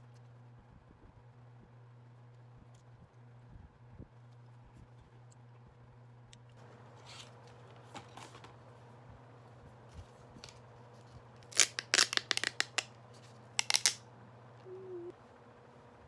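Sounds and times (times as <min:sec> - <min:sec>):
wrapper crackling and tearing: 0:11.4 - 0:12.9, 0:13.6 - 0:14.0.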